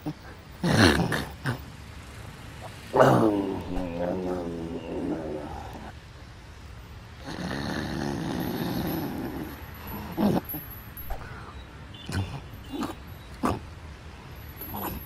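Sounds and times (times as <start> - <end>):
man snoring: 7.2 - 11.2.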